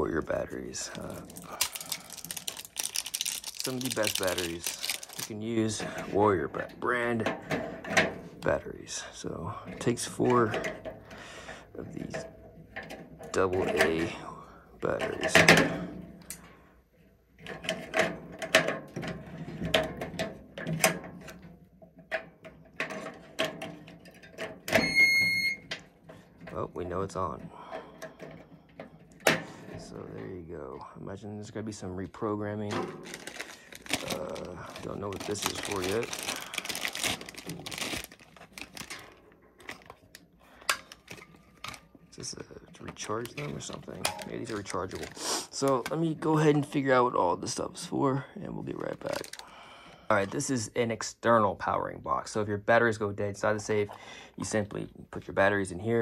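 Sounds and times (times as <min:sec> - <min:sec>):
plastic bag crinkling: 0:00.2 - 0:05.8, 0:32.9 - 0:46.2, 0:48.6 - 0:49.5
batteries clicking into holder: 0:00.9 - 0:05.3
handling clicks and knocks: 0:17.4 - 0:24.8, 0:32.6 - 0:42.0, 0:42.7 - 0:46.1.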